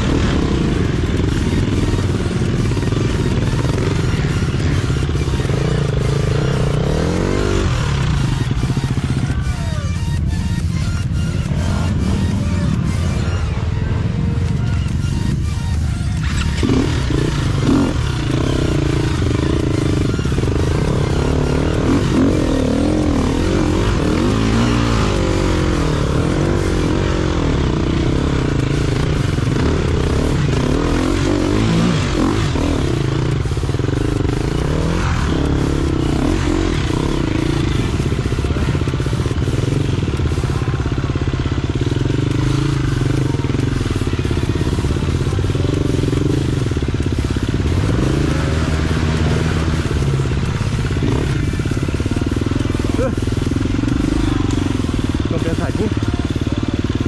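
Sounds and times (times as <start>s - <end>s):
dirt bike engine revving: 0.0s - 57.0s
steady rushing noise: 0.0s - 57.0s.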